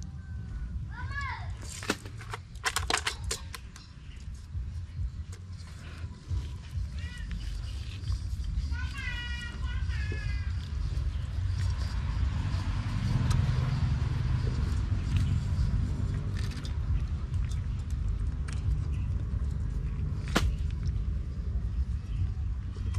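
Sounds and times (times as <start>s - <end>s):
net rustling and clicking: 1.6s - 4.4s
low rumble: 3.7s - 22.9s.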